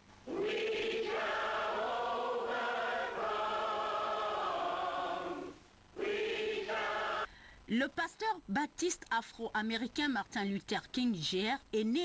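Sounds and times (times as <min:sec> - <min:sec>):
choir singing long notes: 0:00.3 - 0:07.3.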